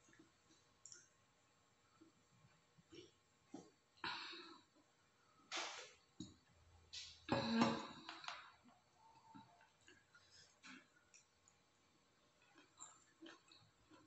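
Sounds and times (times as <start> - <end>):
chewing and lip-smacking: 12.4 - 14.0.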